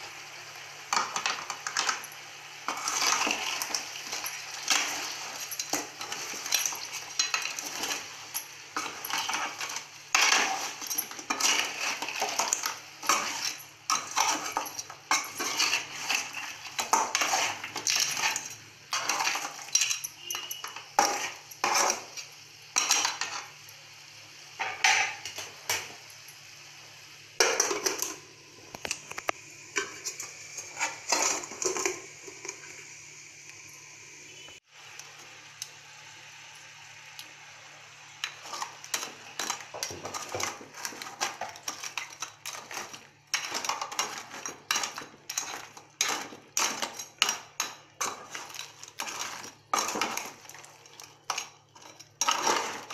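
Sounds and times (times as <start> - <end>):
metal spoon scraping a pan: 0.9 - 23.6, 28.8 - 32.8, 38.2 - 52.9.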